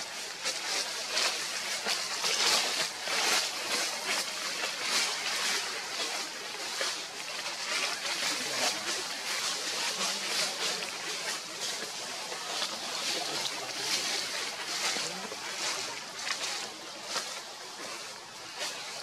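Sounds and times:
faint unintelligible voices: 0:00.0 - 0:19.0
high outdoor hiss: 0:00.0 - 0:19.0.

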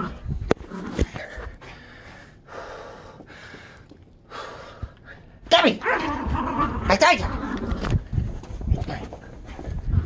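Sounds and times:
man breathing hard: 0:01.2 - 0:05.5.

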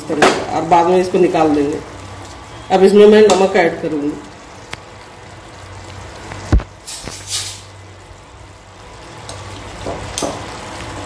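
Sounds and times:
short hissing rustles: 0:06.8 - 0:07.8.

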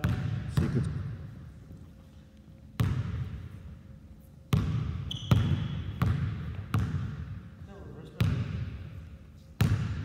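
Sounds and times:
basketball bouncing on hardwood floor: 0:00.0 - 0:01.0, 0:04.5 - 0:07.2.

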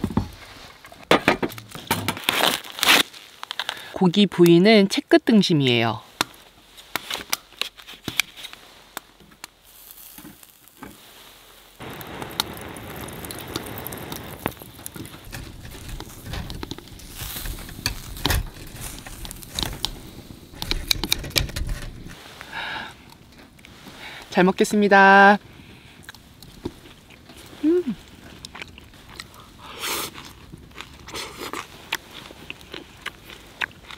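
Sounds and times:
meat sizzling on grill: 0:09.6 - 0:20.8.

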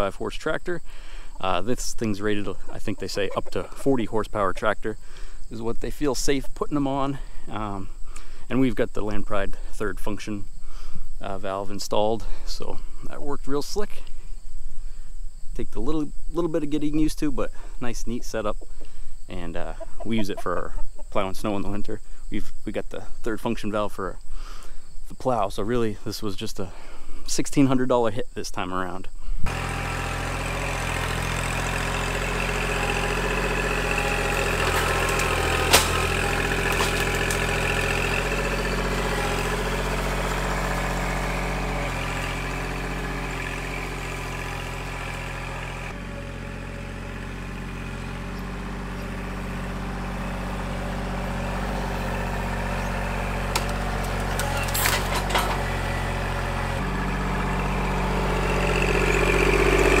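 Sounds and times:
tractor diesel engine running: 0:00.0 - 0:15.0, 0:29.2 - 1:00.0.

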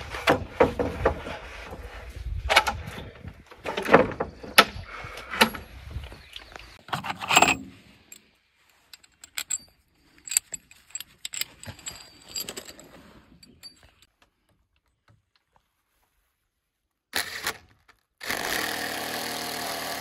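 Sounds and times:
metal screws jingling: 0:06.9 - 0:14.1.

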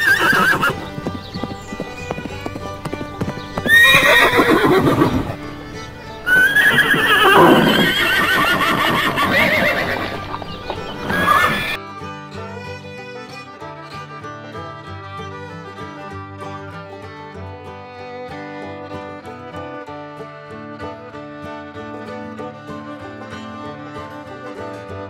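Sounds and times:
horse whinnying: 0:00.0 - 0:11.8.

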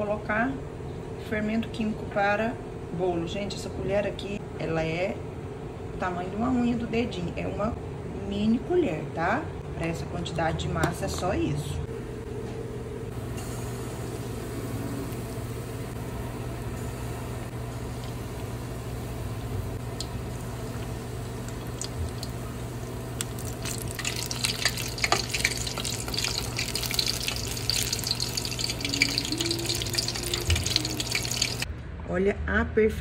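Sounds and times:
steady low hum: 0:00.0 - 0:32.0
fritters frying in hot oil: 0:23.0 - 0:31.7.

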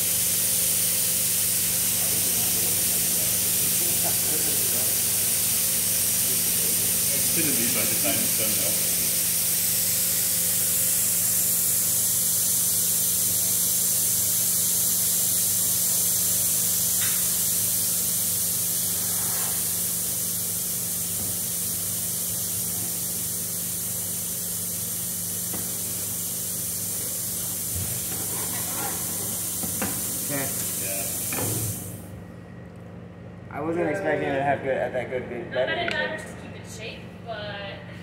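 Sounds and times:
hiss of air: 0:00.0 - 0:32.1.

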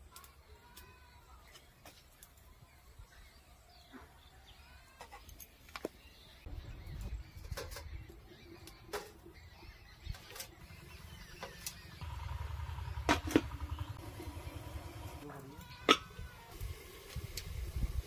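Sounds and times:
metal lid clanking: 0:15.8 - 0:16.2.

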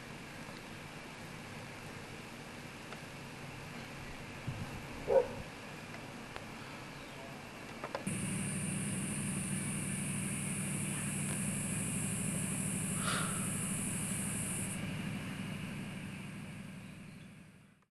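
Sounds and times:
engine humming: 0:00.0 - 0:17.9
high-pitched buzz: 0:08.1 - 0:17.7.

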